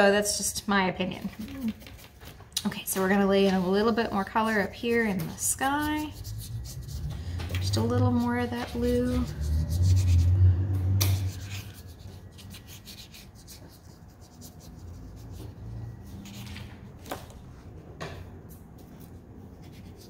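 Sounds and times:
brush bristles rubbing on paper: 4.3s - 10.4s, 11.1s - 15.4s.

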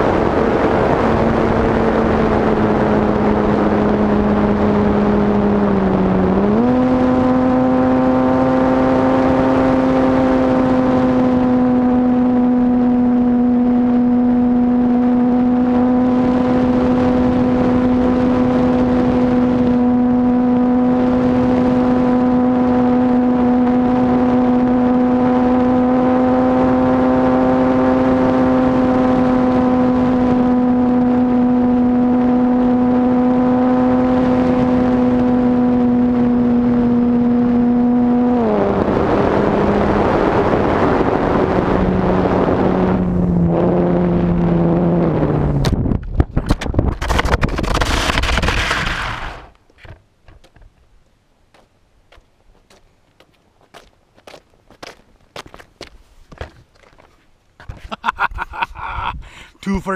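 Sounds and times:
plane scraping on asphalt: 46.0s - 50.7s.

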